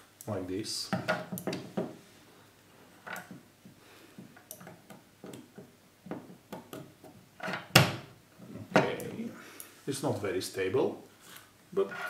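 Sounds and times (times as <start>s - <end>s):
plastic parts clicking and knocking: 0.9s - 2.0s.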